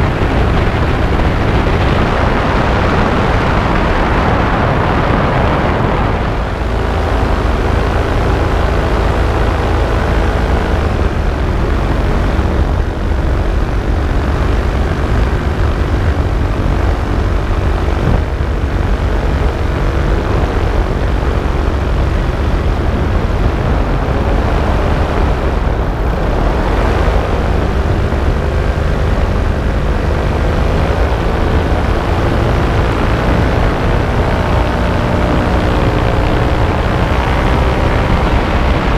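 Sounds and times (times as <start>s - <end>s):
paramotor engine and propeller: 0.0s - 38.9s
wind rumble on microphone: 0.0s - 38.9s.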